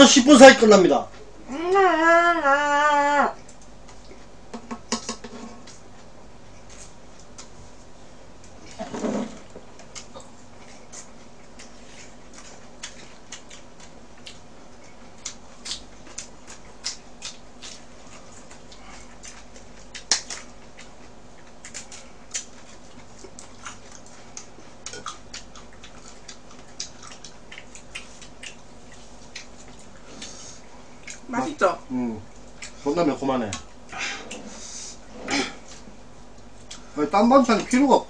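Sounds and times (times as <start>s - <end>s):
low background hum: 0.0s - 38.0s
wet chewing smacks and clicks: 9.8s - 30.4s, 31.0s - 31.3s, 32.4s - 32.8s.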